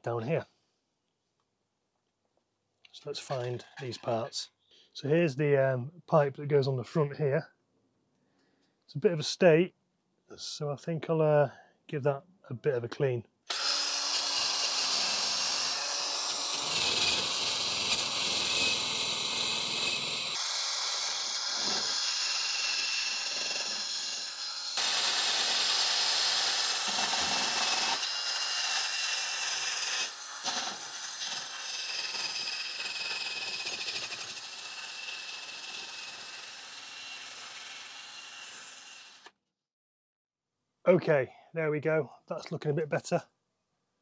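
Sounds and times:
drill motor whine: 13.5s - 39.3s.

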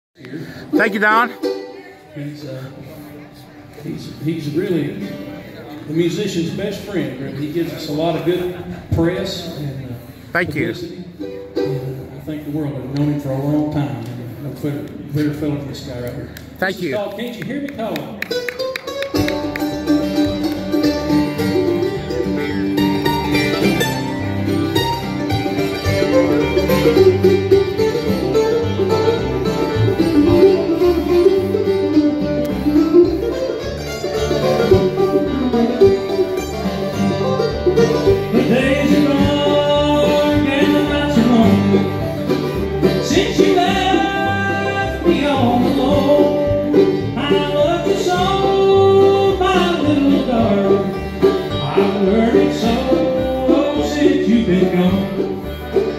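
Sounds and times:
banjo rolls: 0.2s - 16.0s, 17.4s - 55.9s
bluegrass band playing: 0.2s - 55.9s
walking bass: 0.2s - 55.9s
person singing: 38.1s - 55.5s.

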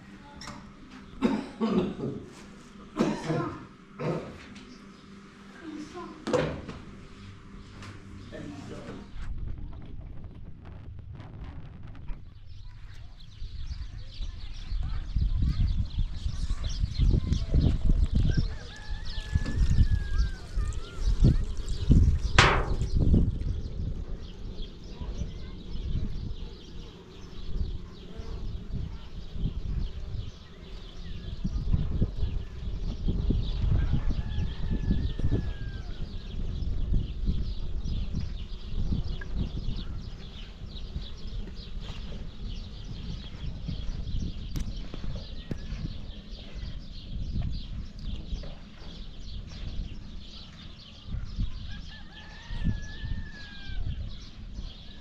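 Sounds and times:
low rumble: 6.6s - 51.9s
birds chirping: 12.1s - 55.0s.

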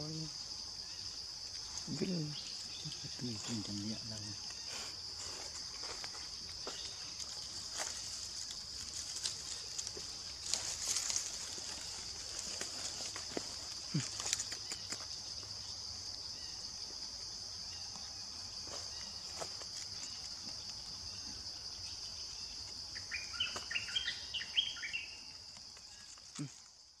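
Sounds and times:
insects droning: 0.0s - 27.0s
short chirping calls: 23.0s - 25.3s.

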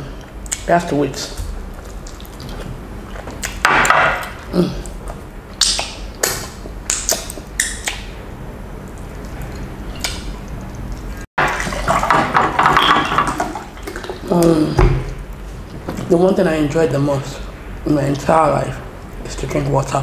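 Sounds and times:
wet mouth smacks: 1.7s - 3.6s, 4.2s - 8.2s.

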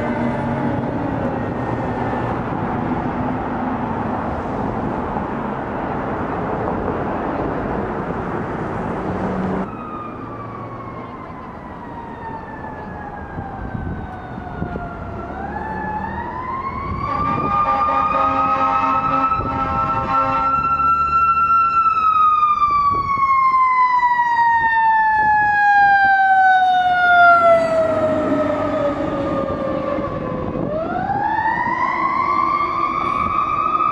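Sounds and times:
siren wailing: 0.0s - 2.6s, 9.6s - 33.9s
engine and road noise: 0.0s - 33.9s.

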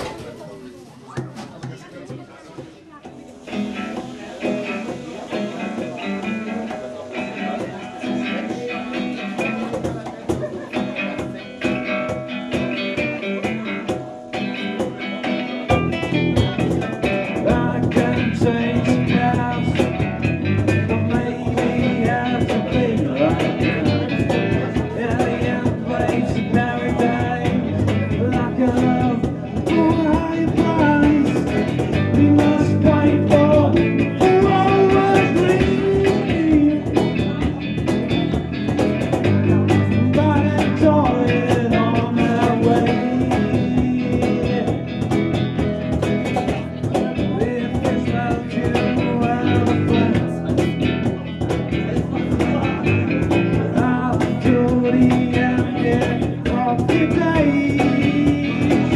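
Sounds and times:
electric guitar: 3.0s - 58.9s
electric bass: 10.8s - 58.9s
man singing into microphone: 16.4s - 37.6s, 39.4s - 45.7s, 46.5s - 58.9s.

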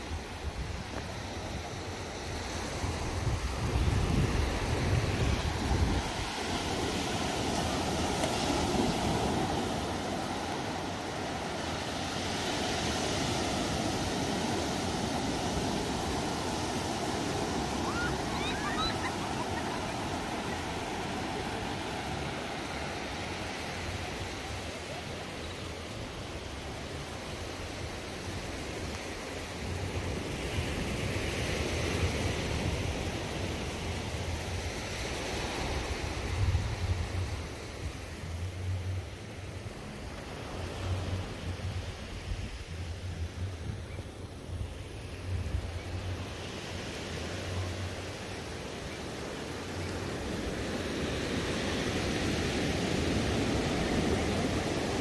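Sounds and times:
water rushing: 0.0s - 29.8s
faint high chirps: 17.8s - 21.0s.

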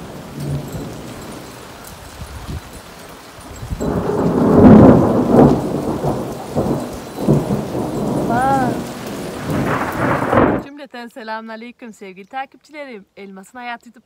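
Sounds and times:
thunder rumbling: 0.0s - 2.8s, 3.6s - 10.7s
rain: 0.0s - 10.7s.

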